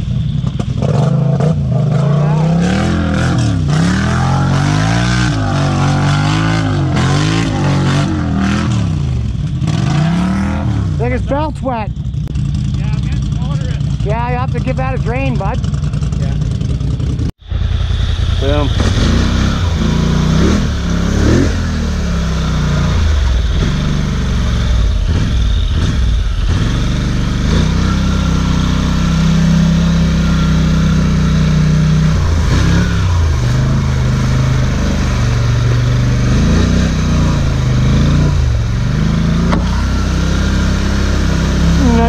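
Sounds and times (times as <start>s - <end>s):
atv engine running: 0.0s - 42.0s.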